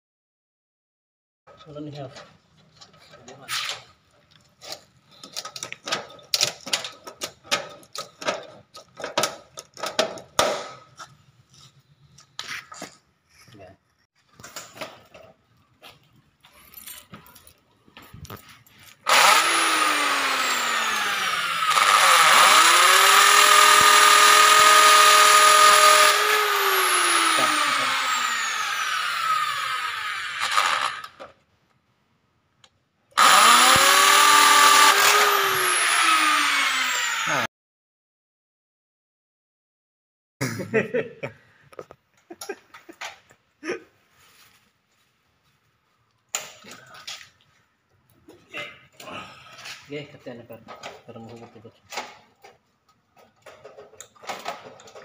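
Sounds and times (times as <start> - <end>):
clicks and metal knocks: 1.5 - 10.9, 50.6 - 55.0
electric drill drilling steel: 19.0 - 31.2, 33.2 - 37.5.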